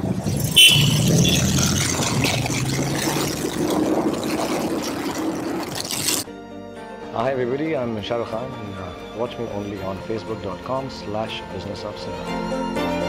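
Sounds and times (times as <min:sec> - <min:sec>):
motorcycle and scooter engines: 0:00.0 - 0:06.2
traffic noise: 0:00.0 - 0:06.2
short high beep: 0:00.5 - 0:01.4.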